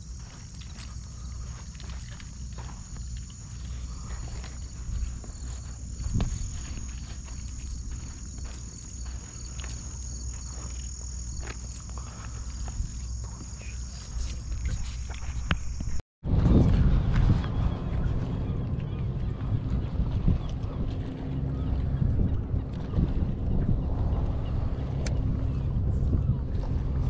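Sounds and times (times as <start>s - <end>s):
low rumble: 0.0s - 13.5s, 16.2s - 27.0s
high-pitched insect chorus: 0.0s - 16.0s.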